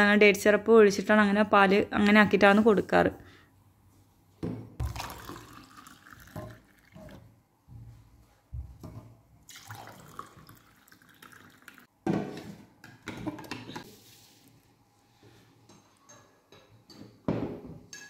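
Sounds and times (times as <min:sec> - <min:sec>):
milk pouring into glasses: 0:04.8 - 0:07.3, 0:09.4 - 0:11.9.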